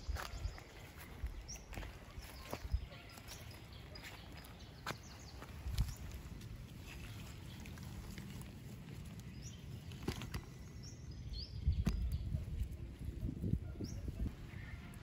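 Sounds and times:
faint high bird chirps: 0.0s - 6.0s.

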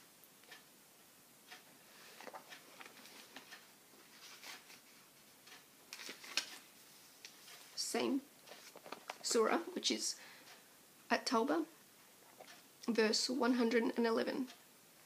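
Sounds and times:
book pages rustling: 2.1s - 5.0s, 5.9s - 6.6s, 8.5s - 9.3s.

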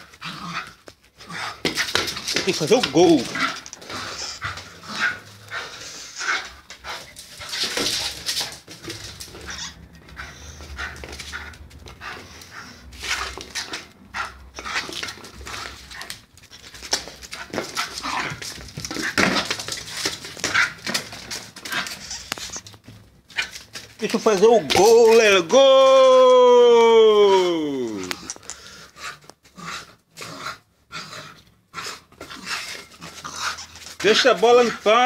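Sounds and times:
small dog panting: 9.3s - 14.6s
ball knocks and scrapes on floor: 14.7s - 23.9s.

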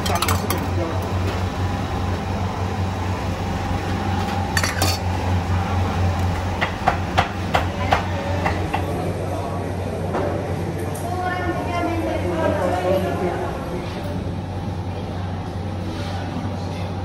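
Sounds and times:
sharp clatter of bowls: 0.0s - 0.7s, 4.6s - 5.1s
ceramic bowls clinking on metal counter: 0.0s - 1.0s, 4.5s - 5.2s
steady low hum: 0.0s - 17.0s.

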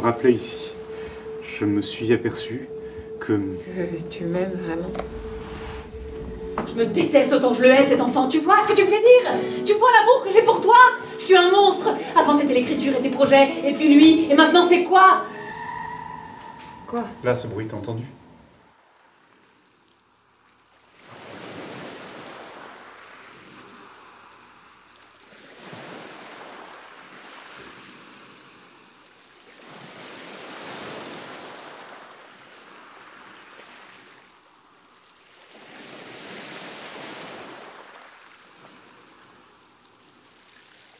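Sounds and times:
rushing surf-like noise: 0.0s - 9.8s.

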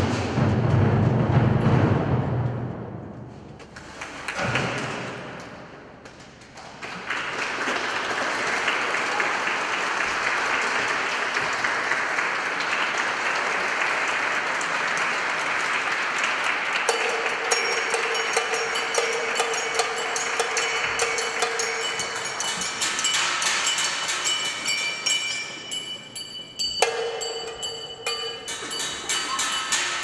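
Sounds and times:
audience applauding: 6.5s - 22.4s
percussion stroke ringing: 16.9s - 30.0s.

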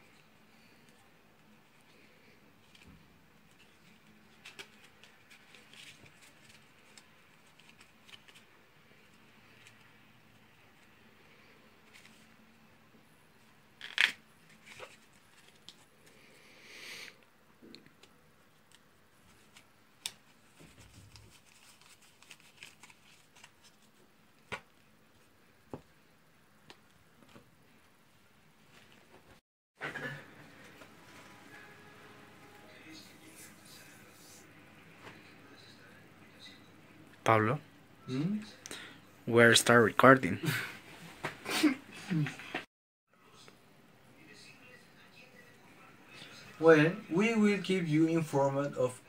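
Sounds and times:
playing cards sliding and rustling: 1.9s - 9.9s, 11.8s - 12.4s, 13.8s - 16.2s, 19.2s - 24.6s
playing cards being shuffled: 13.8s - 15.9s.

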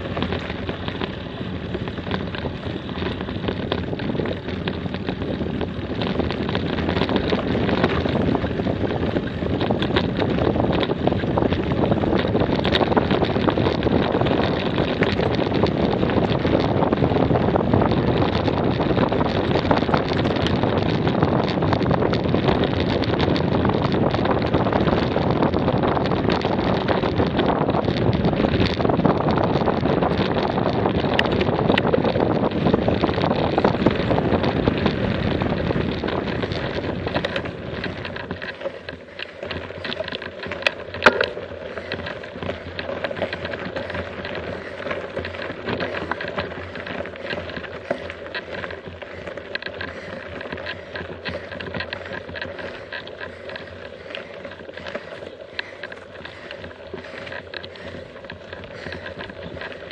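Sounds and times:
bicycle tyres on gravel: 0.0s - 59.9s
small rattles: 0.0s - 59.9s
wind buffeting microphone: 0.0s - 59.9s.

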